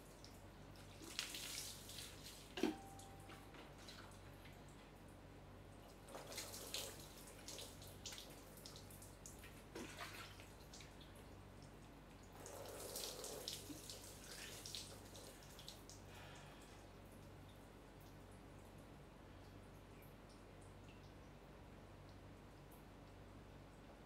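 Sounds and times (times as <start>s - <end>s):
water pouring and splashing: 0.8s - 2.6s, 6.0s - 11.1s, 12.3s - 16.0s
water dripping: 5.8s - 9.7s, 10.4s - 24.0s.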